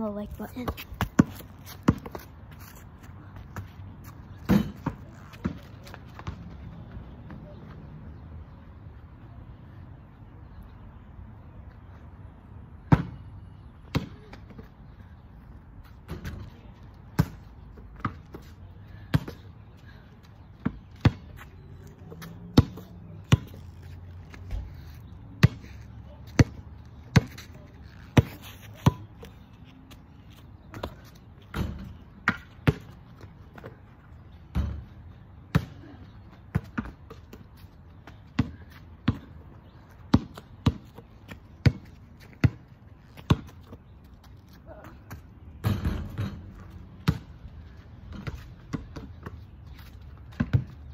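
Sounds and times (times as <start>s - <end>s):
basketball bouncing on asphalt: 0.1s - 7.8s, 12.8s - 15.2s, 15.8s - 50.9s.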